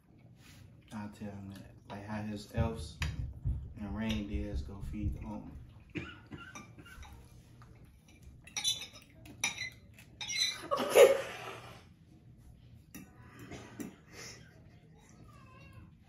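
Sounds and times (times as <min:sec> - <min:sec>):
forks clinking on plates: 0:06.5 - 0:10.9.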